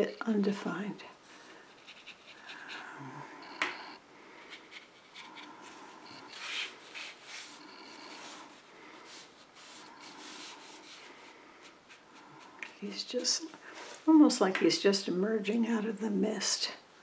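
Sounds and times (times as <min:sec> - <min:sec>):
paintbrush scratching on paper: 0:01.7 - 0:03.0, 0:04.5 - 0:13.5.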